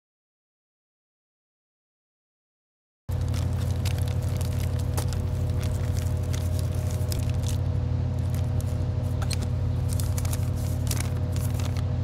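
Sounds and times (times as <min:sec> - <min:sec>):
handling clicks and rustles: 0:03.1 - 0:11.9
low engine hum: 0:03.1 - 0:12.0.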